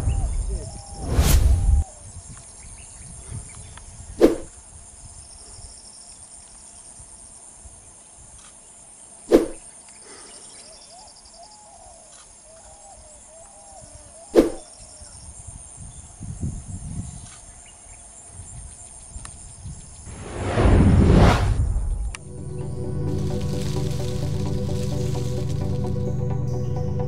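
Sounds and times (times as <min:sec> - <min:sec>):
high-pitched insect chorus: 0:22.2 - 0:27.0.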